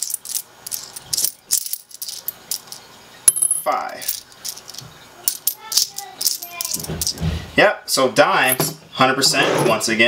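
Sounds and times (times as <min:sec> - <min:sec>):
coins clinking in a palm: 0:00.0 - 0:07.2.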